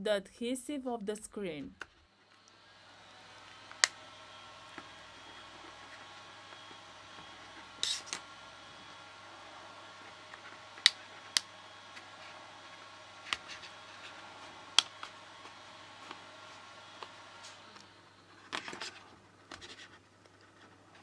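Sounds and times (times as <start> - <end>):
tool scraping screen edge: 7.8 - 8.2.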